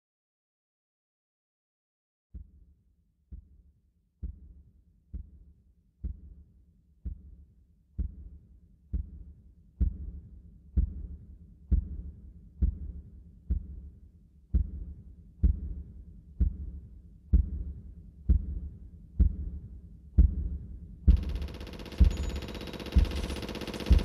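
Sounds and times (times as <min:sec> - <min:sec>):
deep thuds like a heartbeat: 0:02.4 - 0:02.6, 0:03.3 - 0:03.6, 0:04.2 - 0:06.4, 0:07.0 - 0:07.4, 0:08.0 - 0:21.4.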